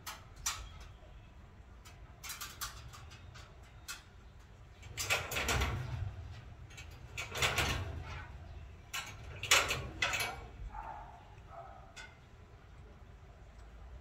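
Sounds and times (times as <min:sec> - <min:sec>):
kennel door bolt rattling: 0:04.8 - 0:12.2.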